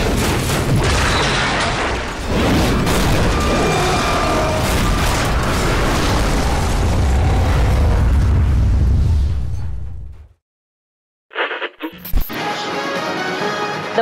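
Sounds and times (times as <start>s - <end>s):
explosion-like rumble with crackle: 0.0s - 10.4s.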